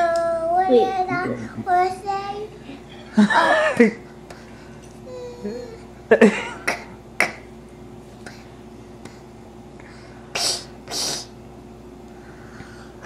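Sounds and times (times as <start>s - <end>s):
child breathy hisses: 10.3s - 11.4s.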